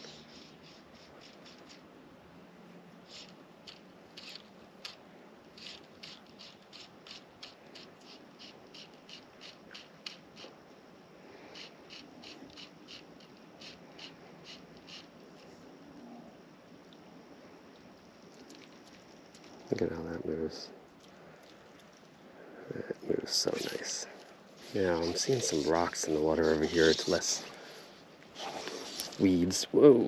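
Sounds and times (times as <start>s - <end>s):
fly line scratchy rubs: 0.0s - 1.9s, 3.0s - 10.6s, 11.4s - 15.6s, 23.3s - 29.4s
faint steady hiss: 0.0s - 30.0s.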